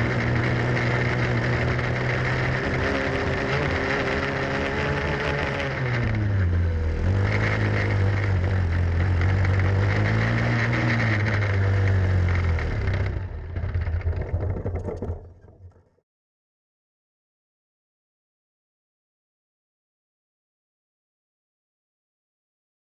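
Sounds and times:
kart engine racing: 0.0s - 15.7s.

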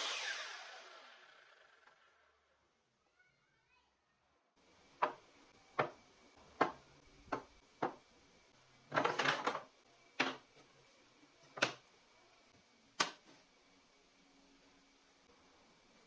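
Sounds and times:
wooden pieces knocking on workbench: 5.0s - 5.2s, 5.8s - 6.0s, 6.6s - 8.0s.

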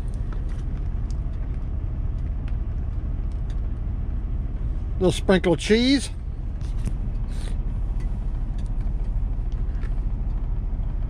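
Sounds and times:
diesel truck engine idling: 0.0s - 11.0s
light clicks and scrapes: 6.6s - 10.4s.

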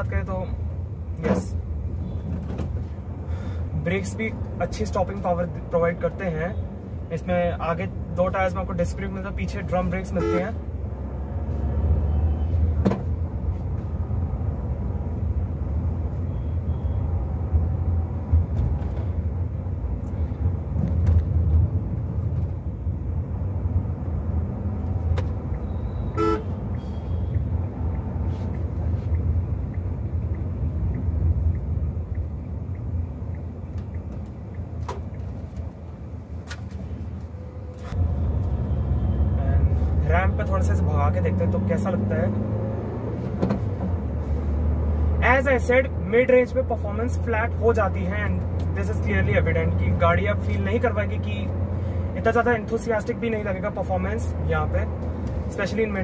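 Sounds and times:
car engine and tyres rumbling: 0.0s - 56.0s
car horn honk: 10.2s - 10.6s, 25.7s - 27.3s.

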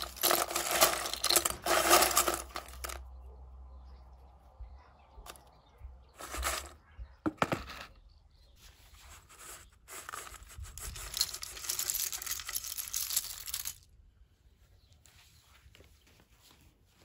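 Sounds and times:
plastic toys rattling in metal bowl: 0.0s - 3.0s, 6.2s - 6.8s, 9.9s - 13.8s
wrapper paper crinkling: 0.0s - 3.0s.

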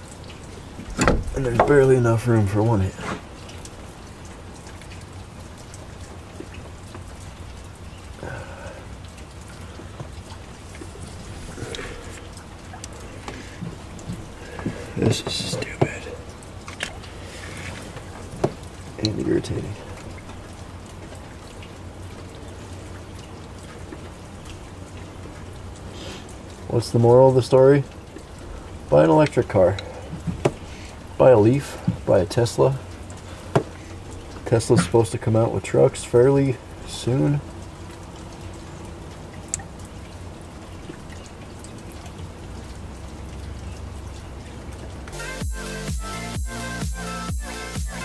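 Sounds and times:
low background noise: 0.0s - 45.2s
steady background hiss: 0.0s - 48.0s.

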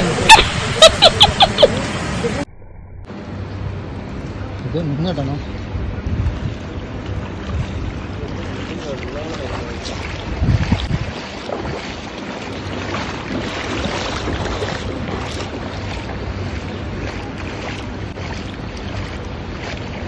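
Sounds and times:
water in flooded street: 0.0s - 2.5s, 3.1s - 20.0s
wind on microphone: 5.6s - 8.7s, 9.7s - 20.0s.

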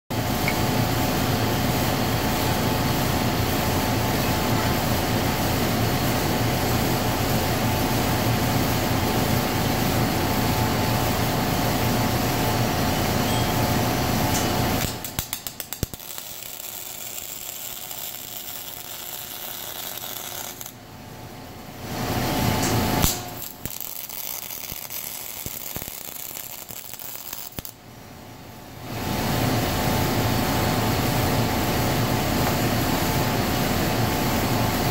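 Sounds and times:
shop machinery hum: 0.1s - 34.9s
welding arc crackling hiss: 12.1s - 20.8s, 21.8s - 27.8s
welding arc striking clicks: 14.3s - 20.8s, 22.6s - 27.8s.

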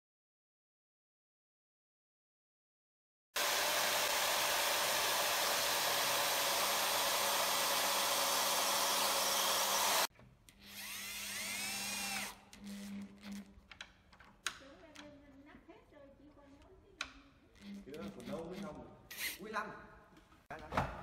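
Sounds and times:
electric drill running: 3.4s - 13.5s.

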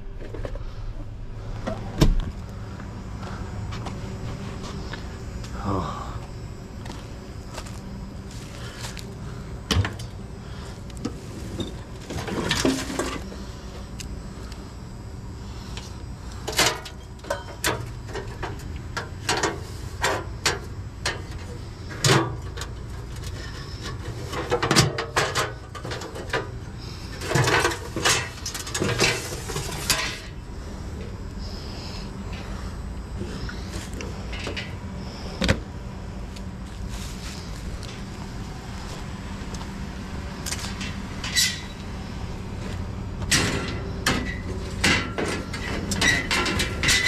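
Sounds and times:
steady low hum: 0.0s - 47.0s
sheet metal clanking and rattling: 43.3s - 47.0s.

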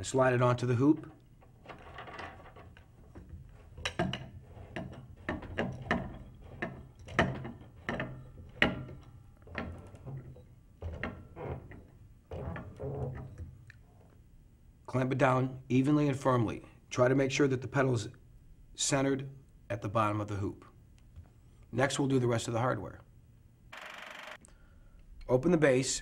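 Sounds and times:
clamp clicking and rattling: 0.8s - 13.8s.

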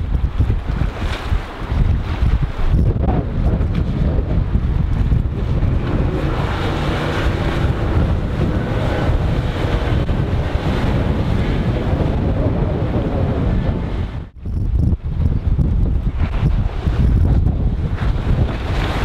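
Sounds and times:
wind buffeting microphone: 0.0s - 19.0s
boat engine drone: 2.7s - 14.7s.

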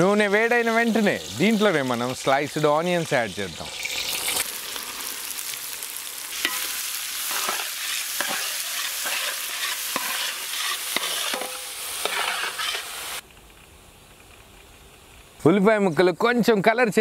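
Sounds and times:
onions sizzling in hot oil: 0.0s - 13.2s
metal ladle scraping a pot: 6.4s - 12.9s.

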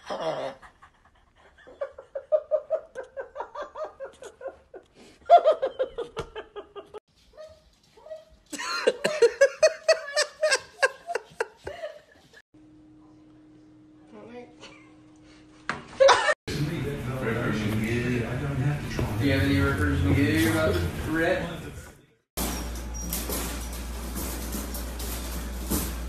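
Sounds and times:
person laughing hard: 8.6s - 12.4s.

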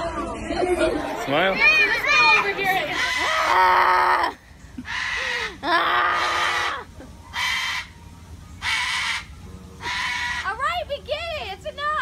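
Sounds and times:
cockatoo screeching: 2.8s - 8.0s, 8.6s - 10.6s.

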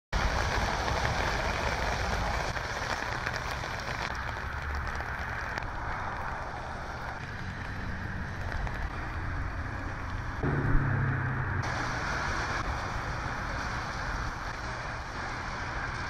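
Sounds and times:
low rumble: 10.4s - 13.8s.

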